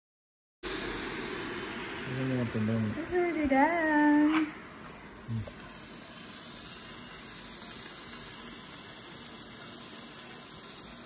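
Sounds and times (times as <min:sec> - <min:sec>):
indoor grill hissing: 0:00.6 - 0:11.0.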